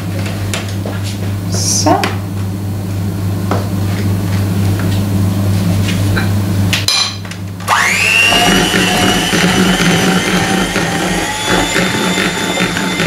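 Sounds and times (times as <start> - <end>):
electric hand mixer humming: 7.6 - 13.0.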